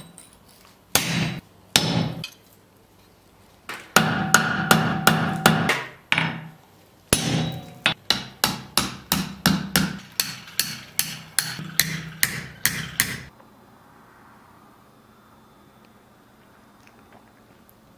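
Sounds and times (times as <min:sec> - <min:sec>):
hammer ringing on anvil: 0:07.2 - 0:08.0.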